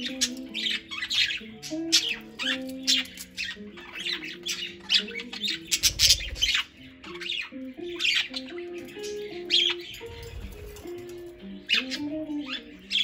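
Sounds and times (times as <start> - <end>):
budgerigars chirping and squawking: 0.0 - 13.0
guitar music: 0.0 - 13.0.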